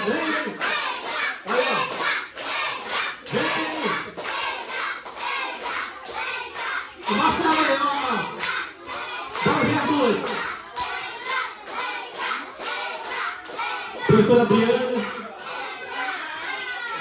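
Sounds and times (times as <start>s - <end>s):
voices: 0.0s - 4.2s
group clapping in rhythm: 0.0s - 17.0s.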